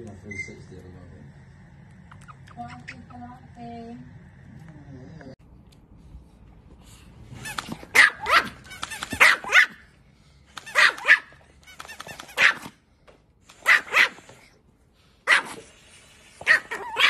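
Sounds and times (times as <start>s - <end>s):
small dog yapping: 7.5s - 9.9s, 10.6s - 12.8s, 13.5s - 14.5s, 15.3s - 15.7s, 16.4s - 17.0s.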